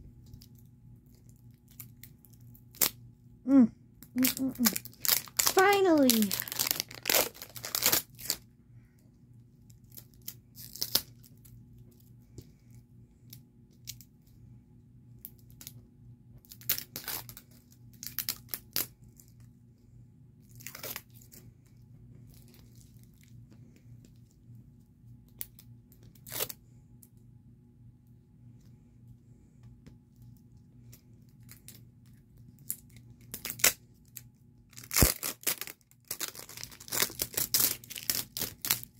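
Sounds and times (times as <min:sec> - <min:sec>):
plastic wrapping crinkling and tearing: 0:00.2 - 0:03.0, 0:04.1 - 0:08.4, 0:09.7 - 0:12.1, 0:16.4 - 0:19.4, 0:20.4 - 0:23.3, 0:25.3 - 0:26.6, 0:31.3 - 0:38.9.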